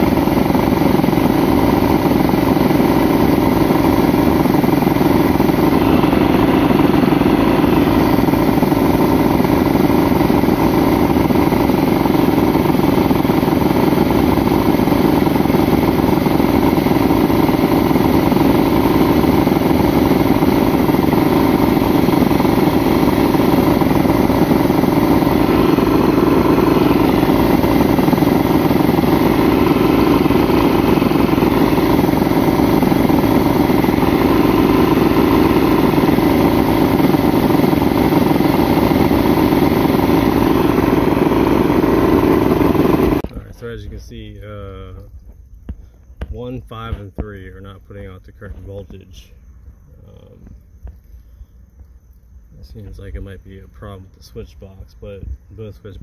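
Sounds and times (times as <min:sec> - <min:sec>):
outboard engine running: 0:00.0 - 0:43.3.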